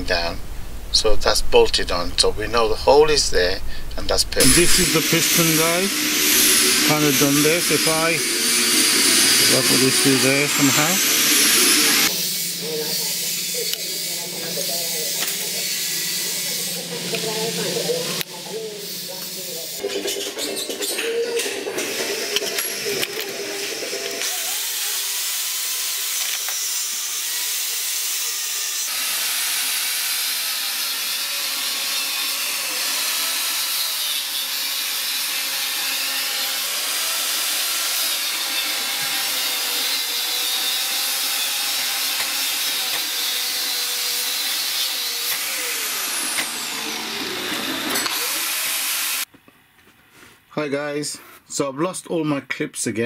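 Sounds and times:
compressed air hissing: 3.6 - 16.8.

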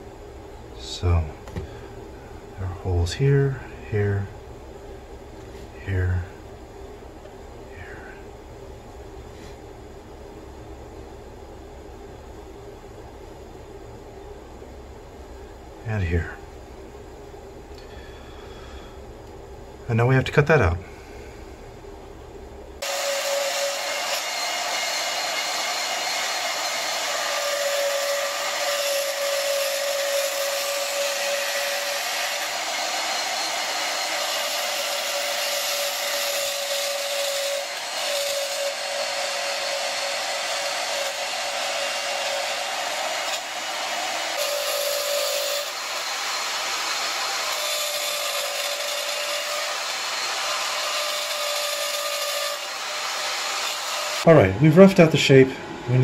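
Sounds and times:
band saw cutting metal plate: 22.8 - 55.0.

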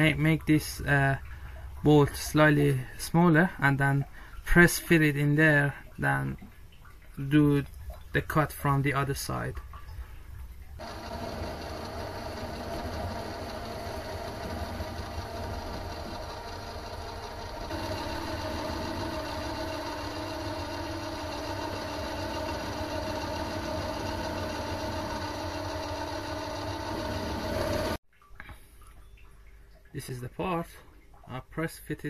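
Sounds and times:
metal lathe motor running: 10.8 - 28.0.

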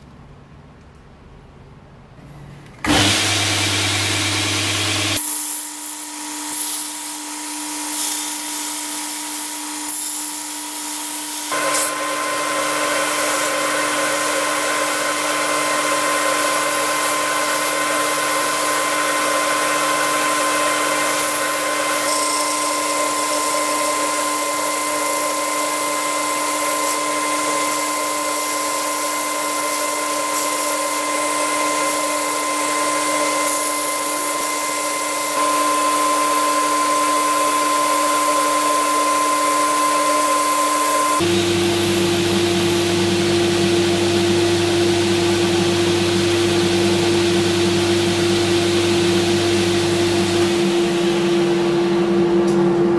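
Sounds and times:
belt grinder motor whine: 2.8 - 8.8, 11.4 - 42.8
sanding belt hissing on wood: 5.2 - 41.3.

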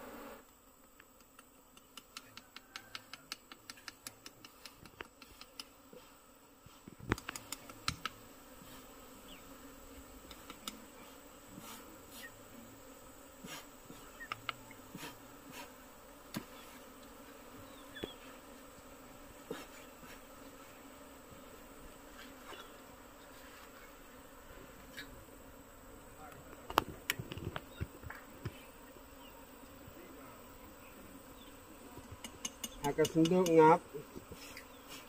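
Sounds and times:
honeybees buzzing faintly: 0.0 - 35.0
knife scraping honeycomb: 1.0 - 9.2, 10.2 - 12.4, 13.3 - 20.9, 22.0 - 24.0, 32.1 - 35.0.

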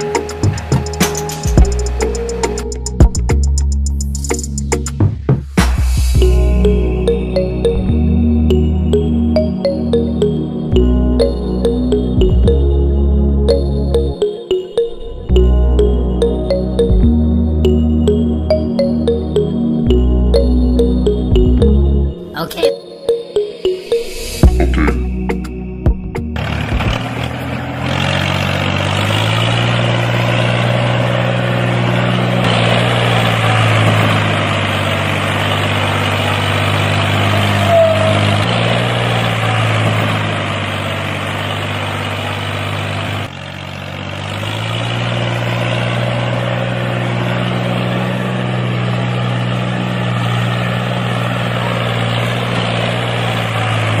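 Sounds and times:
tractor engine humming: 0.0 - 54.0.

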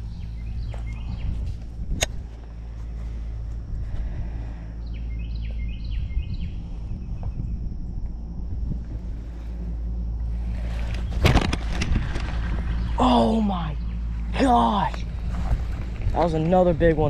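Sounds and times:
bird chirping: 0.0 - 1.6, 4.7 - 7.7, 12.7 - 15.4
low outdoor rumble: 0.0 - 17.0.

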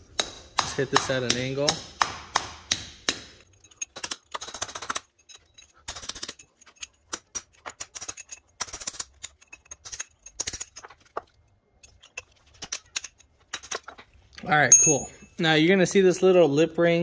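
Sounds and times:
hammer and chisel on steel: 0.0 - 10.7.

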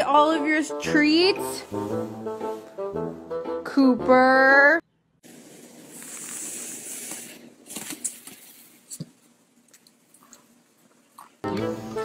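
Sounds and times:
faint scratchy rustling: 5.3 - 9.4.

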